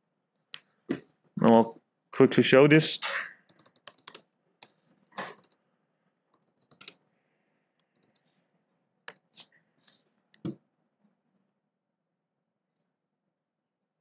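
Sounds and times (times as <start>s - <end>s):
keyboard typing clicks: 3.5s - 5.6s, 6.4s - 7.0s, 8.0s - 8.2s.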